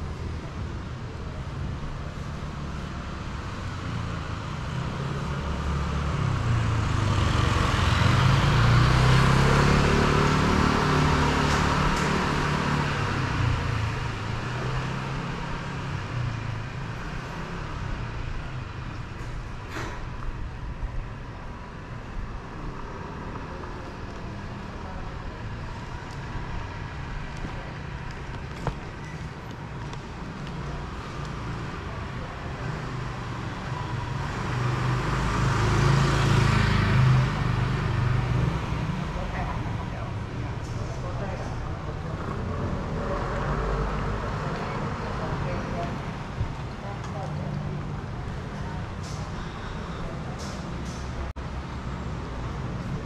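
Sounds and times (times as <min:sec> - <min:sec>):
traffic hum: 0:00.0 - 0:53.0
vehicle engine passing: 0:02.3 - 0:18.8, 0:30.0 - 0:53.0.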